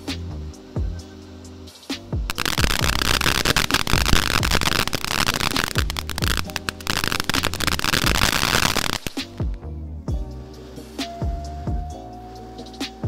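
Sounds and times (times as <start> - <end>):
background music with steady beat: 0.0 - 13.0
firework fountain crackling: 2.3 - 9.5.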